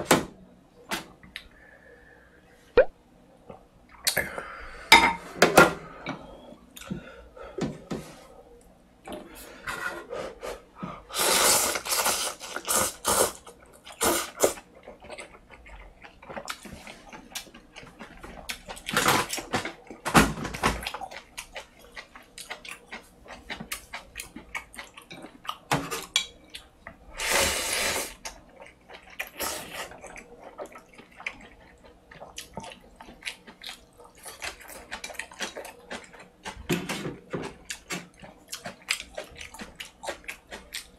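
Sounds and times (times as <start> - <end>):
noodles slurped: 11.2 - 14.6
chewing: 11.9 - 20.0, 20.8 - 27.0, 28.2 - 40.9.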